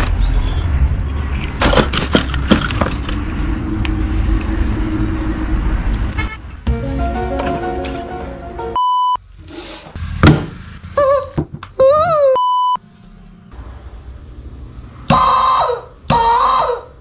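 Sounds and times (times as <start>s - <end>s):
short electronic beeps: 8.8s - 9.2s, 12.3s - 12.8s
thunk: 10.2s - 10.6s
rubber chicken squawking: 11.0s - 12.4s, 15.1s - 17.0s.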